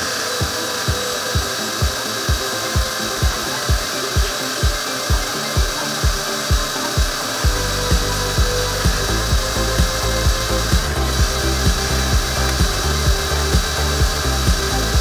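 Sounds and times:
background music with bass beat: 0:00.0 - 0:15.0
shop vacuum running: 0:00.0 - 0:15.0.

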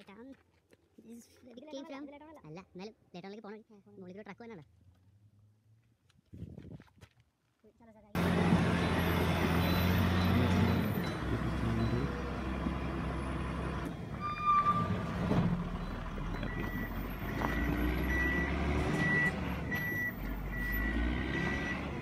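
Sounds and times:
diesel engine running: 0:08.2 - 0:22.0
reversing alarm beeps: 0:08.8 - 0:12.2, 0:15.7 - 0:21.9.

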